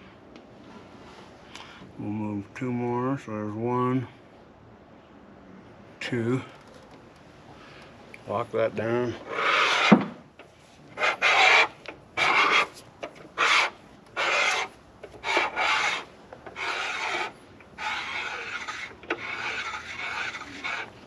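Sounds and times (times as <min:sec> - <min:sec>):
cutter rasping metal: 0:09.2 - 0:10.0, 0:11.0 - 0:21.0.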